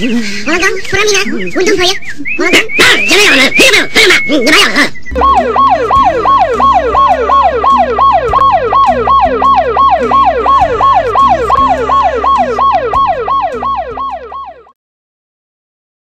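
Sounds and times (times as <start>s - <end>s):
ambulance siren wailing: 5.1s - 14.8s.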